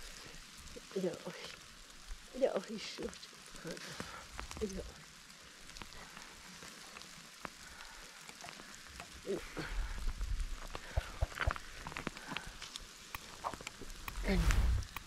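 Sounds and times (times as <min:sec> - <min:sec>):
brushwood crackling and snapping: 0:00.0 - 0:15.0
low rumble: 0:13.9 - 0:15.0.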